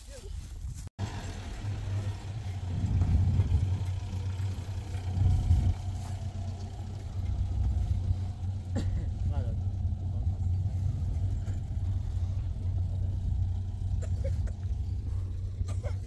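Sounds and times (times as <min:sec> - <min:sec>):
car engine at low revs: 0:01.0 - 0:16.0.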